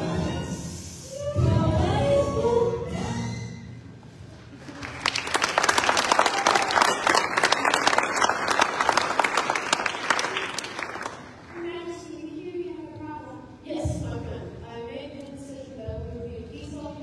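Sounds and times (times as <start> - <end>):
choir singing: 0.0 - 3.3
audience applause: 4.6 - 11.6.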